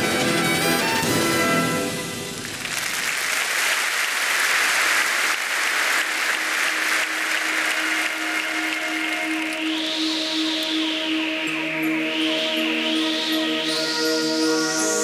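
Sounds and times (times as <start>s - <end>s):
crowd applause: 2.3s - 9.8s
steady held musical note: 7.8s - 15.0s.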